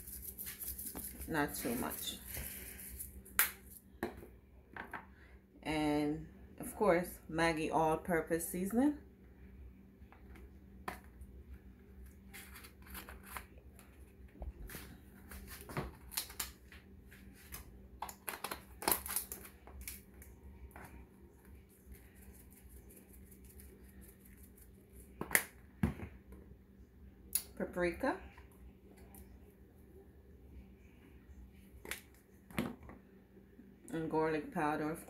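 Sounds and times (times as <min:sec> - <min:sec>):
seasoning shaker rattling: 0:00.0 - 0:03.8
faint low hum: 0:00.0 - 0:35.0.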